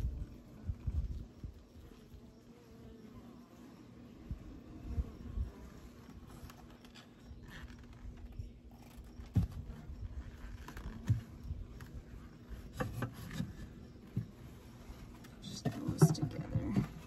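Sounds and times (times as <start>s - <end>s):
honeybees humming: 0.0s - 17.0s
hive frame knocks and rustles: 9.0s - 14.5s, 15.2s - 17.0s.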